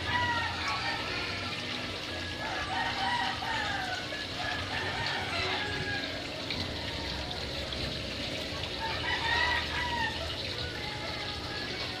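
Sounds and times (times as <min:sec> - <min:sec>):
rooster crowing: 0:00.0 - 0:01.5, 0:02.4 - 0:07.4, 0:08.8 - 0:12.0.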